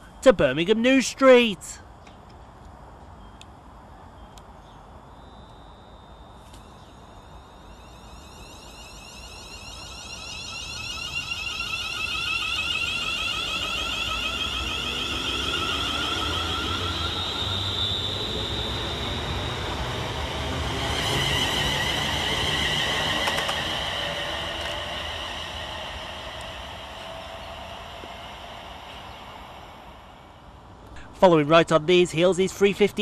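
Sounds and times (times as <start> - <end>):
train traction whining: 6.4 - 31.3
wheels rumbling on rail: 6.6 - 31.1.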